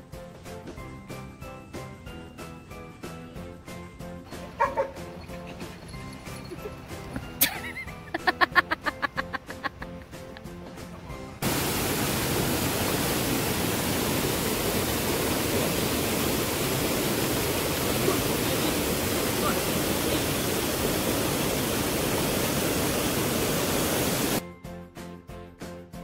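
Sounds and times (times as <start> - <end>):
water rushing over rocks: 11.4 - 24.4.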